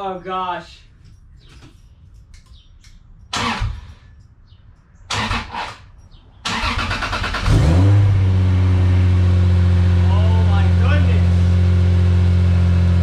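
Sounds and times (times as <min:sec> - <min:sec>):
car engine starting and running: 0:03.3 - 0:03.9, 0:05.1 - 0:13.0
car starter cranking: 0:03.3 - 0:04.0, 0:05.1 - 0:08.1.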